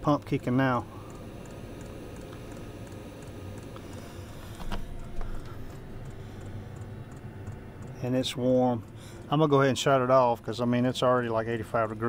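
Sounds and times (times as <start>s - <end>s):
heater fan and burner rush: 0.0s - 12.0s
fuel pump ticking: 5.2s - 10.0s.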